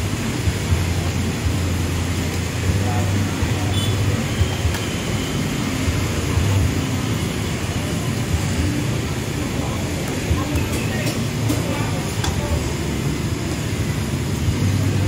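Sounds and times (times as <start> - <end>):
gas burner rumble and hiss: 0.0 - 15.0
water boiling in a pot: 0.0 - 15.0.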